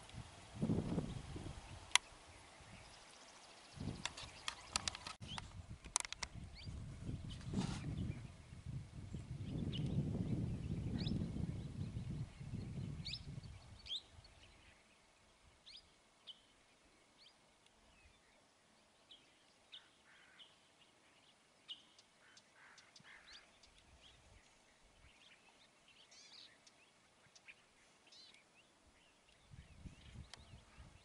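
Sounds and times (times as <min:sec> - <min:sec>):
birds chirping: 0:00.9 - 0:31.0.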